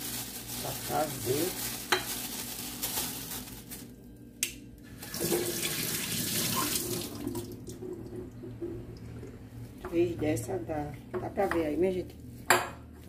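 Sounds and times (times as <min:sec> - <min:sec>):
tap water running into steel sink: 0:05.0 - 0:08.8.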